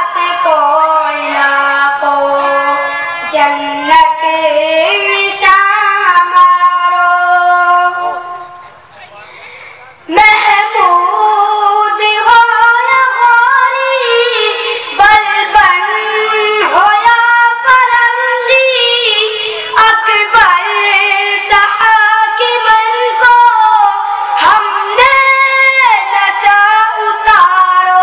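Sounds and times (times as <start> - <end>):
boy singing solo: 0.0 - 8.3, 10.1 - 28.0.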